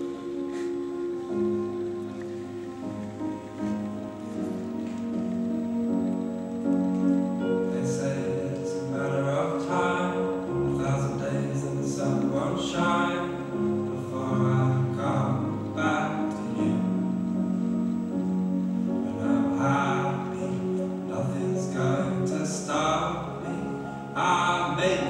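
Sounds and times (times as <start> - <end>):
long held chords: 0.0 - 25.0
person singing: 7.4 - 17.7, 19.0 - 25.0.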